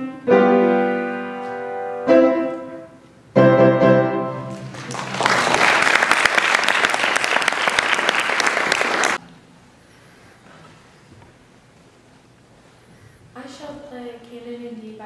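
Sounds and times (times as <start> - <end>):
upright piano chords: 0.0 - 5.2
audience applause: 4.5 - 9.2.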